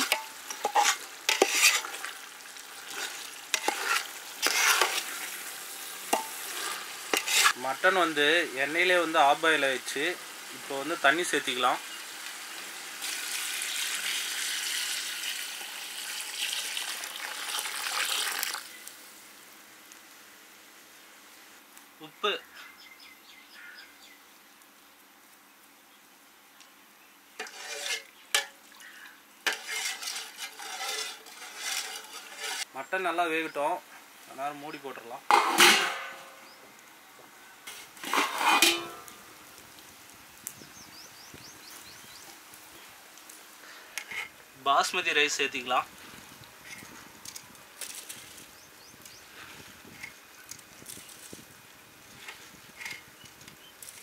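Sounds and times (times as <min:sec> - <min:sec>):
faint hiss of cooking: 0:00.0 - 0:54.0
water pouring into a pot: 0:10.4 - 0:18.8
pot lid clattering: 0:35.3 - 0:36.3, 0:38.1 - 0:39.0.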